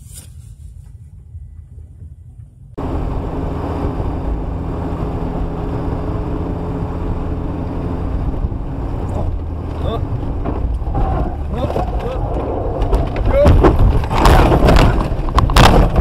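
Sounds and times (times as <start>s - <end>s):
faint low rumble: 0.0s - 4.6s
tyre and road noise: 0.0s - 16.0s
car engine running: 1.5s - 13.3s.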